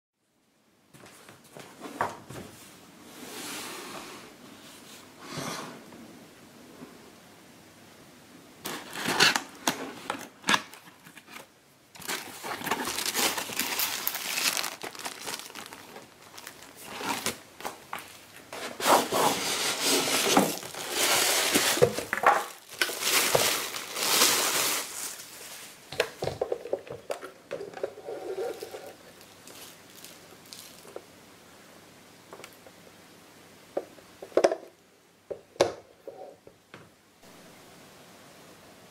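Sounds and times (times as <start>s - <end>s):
plastic wrapping crinkling: 8.6s - 18.5s, 19.3s - 27.0s, 28.1s - 31.0s
cardboard box opening: 8.7s - 17.4s.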